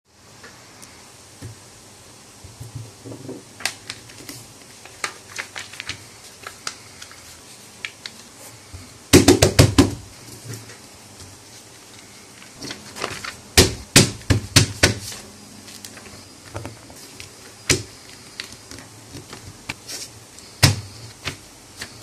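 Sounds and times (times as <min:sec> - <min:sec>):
paper taps and crinkles: 0:02.6 - 0:08.3, 0:10.5 - 0:22.0
paper being creased: 0:03.6 - 0:08.3.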